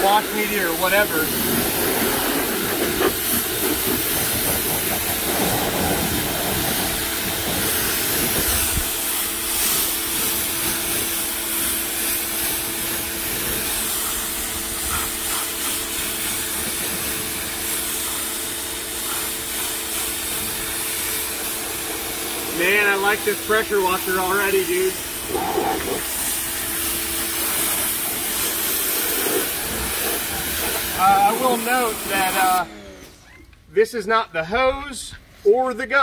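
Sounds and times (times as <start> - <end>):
pressure washer jet hissing: 0.0 - 33.0
pressure washer hum: 0.0 - 33.5.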